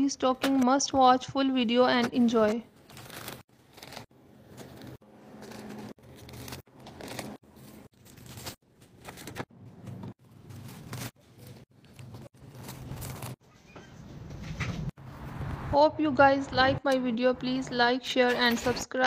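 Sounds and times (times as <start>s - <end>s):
plastic packaging rustling: 2.8s - 9.5s, 10.2s - 13.4s.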